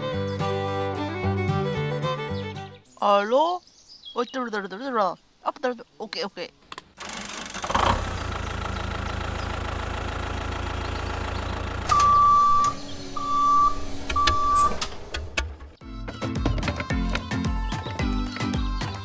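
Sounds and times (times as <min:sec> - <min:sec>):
tractor engine idling: 0:07.0 - 0:15.6
horn beeps: 0:11.9 - 0:14.8.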